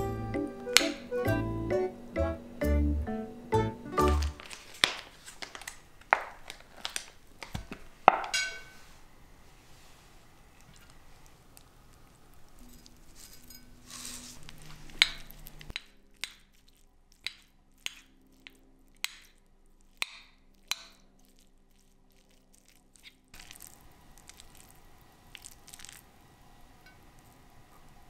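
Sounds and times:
rice squishing and scraping: 9.5 - 26.2.

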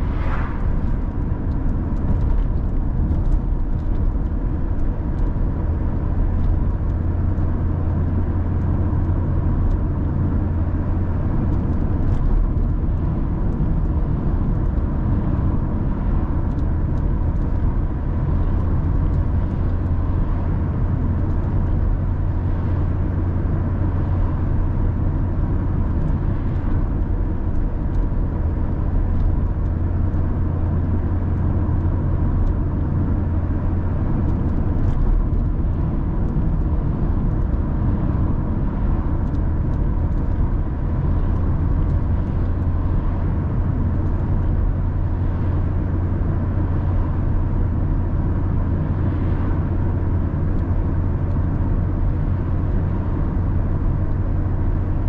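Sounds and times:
faint steady whine: 0.0 - 3.6
car engine and road drone: 0.0 - 55.0.

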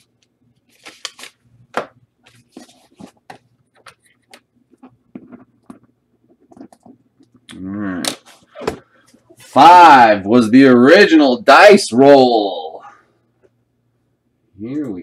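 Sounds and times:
card sleeves clicking and rustling: 0.7 - 4.4.

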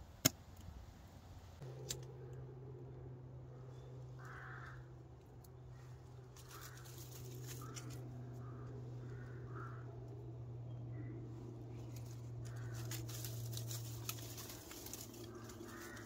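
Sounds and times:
steady low hum: 0.0 - 16.0
crow cawing: 4.0 - 11.2, 12.0 - 16.0.

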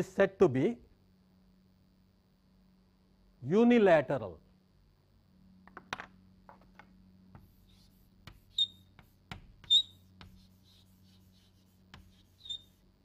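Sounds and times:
faint low hum: 0.0 - 13.0
chalk tapping and scratching: 7.3 - 13.0
chalk squeaks: 7.4 - 13.0.

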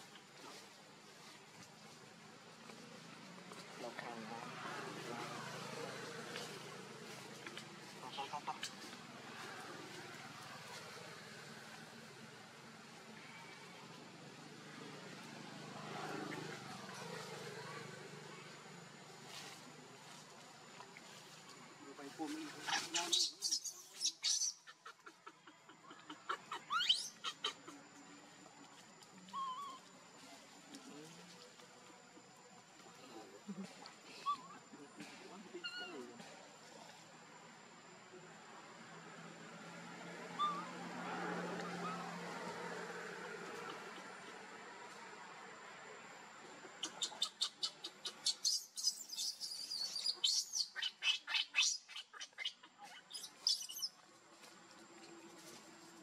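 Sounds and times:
infant monkey squealing: 22.7 - 27.7, 29.3 - 29.8, 34.2 - 34.6, 35.6 - 36.0, 40.3 - 40.8, 41.6 - 42.2, 46.8 - 54.0.

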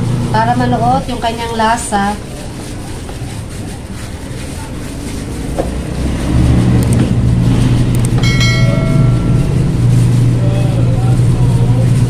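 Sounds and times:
vehicle engine rumble: 0.0 - 12.0
high electronic chime: 8.2 - 10.4.

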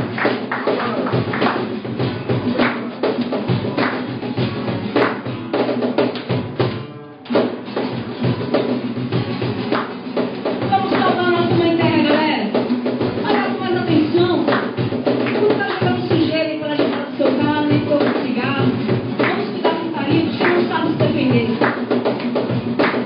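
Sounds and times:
acoustic guitars: 0.0 - 23.0
cajon beat: 0.0 - 23.0
woman singing: 10.6 - 12.6, 13.2 - 14.7, 15.3 - 21.6.

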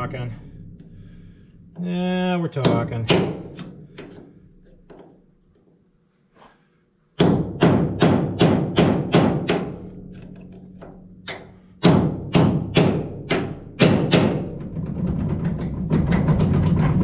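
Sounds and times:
hammer striking metal punch: 2.6 - 4.2, 7.2 - 14.5.

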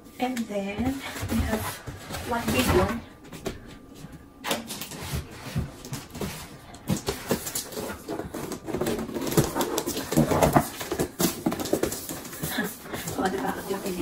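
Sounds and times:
wrapping paper rustling: 4.8 - 14.0
box knocking and bumping: 6.9 - 13.4.

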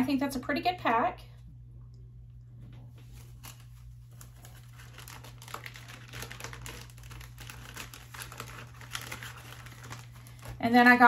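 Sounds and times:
plastic packaging crinkling: 3.0 - 11.0.

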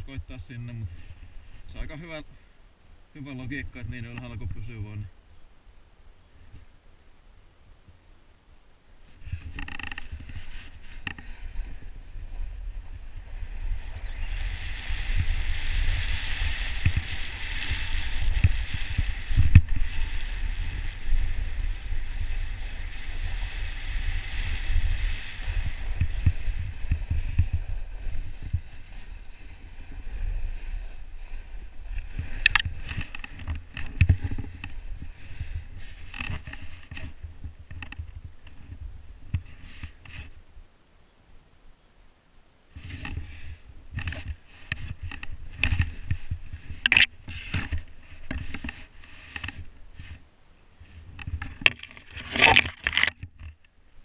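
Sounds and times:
snowboard hissing on snow: 9.0 - 33.1, 34.1 - 37.2, 39.5 - 40.4, 42.7 - 45.0
wind buffeting microphone: 9.2 - 39.4.

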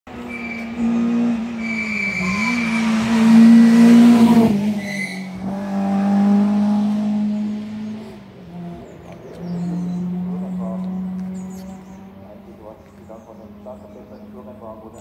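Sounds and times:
race car engine at high revs: 0.1 - 15.0
tyre squeals: 0.2 - 3.7, 4.8 - 5.5.

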